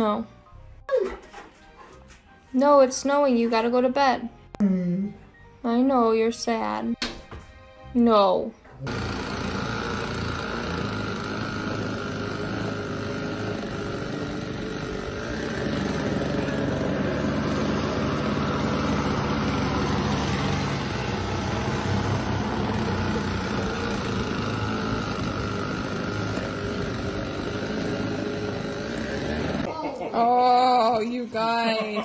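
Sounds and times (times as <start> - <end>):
snowblower running: 8.8 - 29.7.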